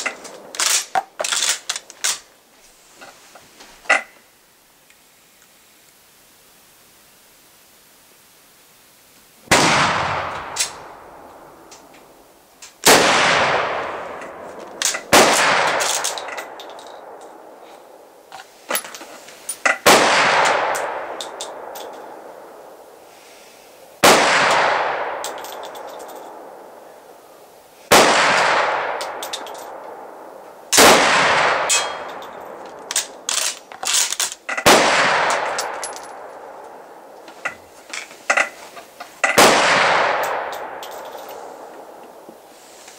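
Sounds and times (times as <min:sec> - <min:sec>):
rifle shots echoing: 0:09.5 - 0:11.9, 0:12.8 - 0:18.0, 0:19.8 - 0:22.8, 0:24.0 - 0:26.8, 0:27.9 - 0:34.0, 0:34.6 - 0:37.2, 0:39.2 - 0:42.2.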